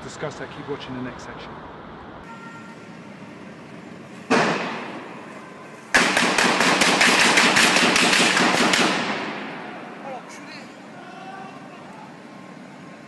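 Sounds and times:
rapid automatic gunfire: 6.0s - 9.4s.

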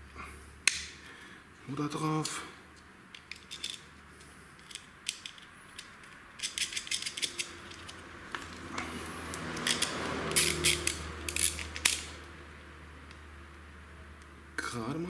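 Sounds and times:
metal parts and tool clicking: 3.1s - 12.3s.

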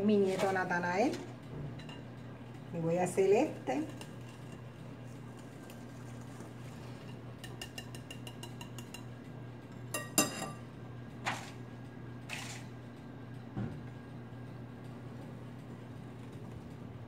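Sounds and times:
spoon ticking against glass bowl: 7.4s - 9.2s.

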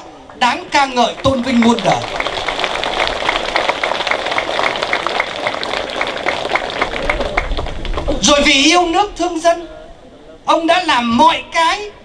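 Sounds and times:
crowd applause: 0.0s - 8.8s.

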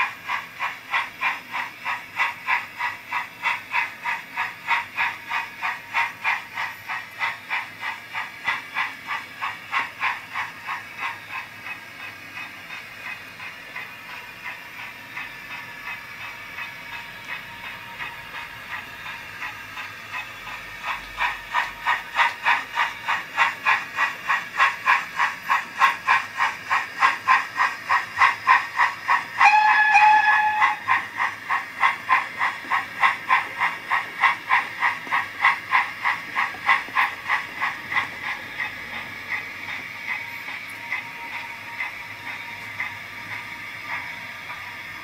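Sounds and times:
steam hiss: 0.0s - 45.0s
steam locomotive exhaust chuffs: 0.0s - 45.0s
steam whistle blast: 29.4s - 30.8s.

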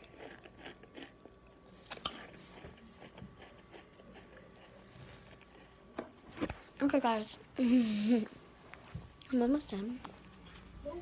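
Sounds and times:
chewing cereal: 0.0s - 6.0s.

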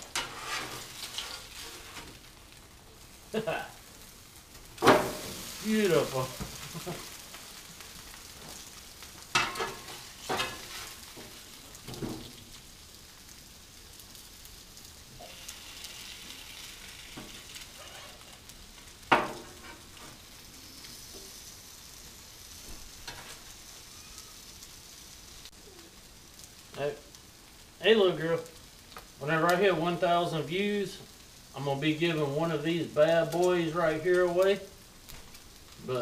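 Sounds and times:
potatoes sizzling on griddle: 0.0s - 36.0s
metal spatula clanking on steel: 9.3s - 10.7s.

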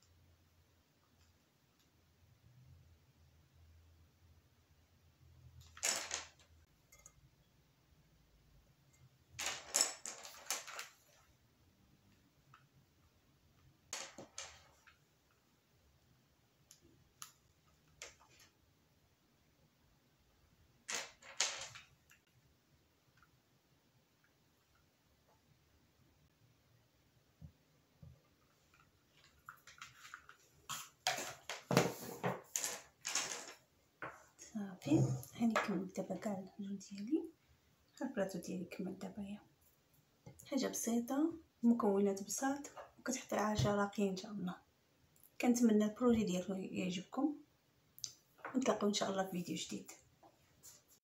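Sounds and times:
plastic gems clattering on marble: 5.6s - 7.1s, 9.3s - 11.2s, 13.9s - 15.0s, 20.8s - 22.2s, 32.4s - 33.6s
clicks and rustling of craft materials: 28.3s - 35.7s.

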